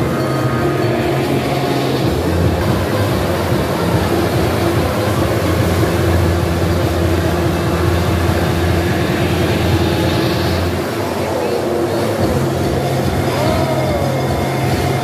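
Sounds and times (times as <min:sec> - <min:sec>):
motorcycle engines droning: 0:00.0 - 0:15.0.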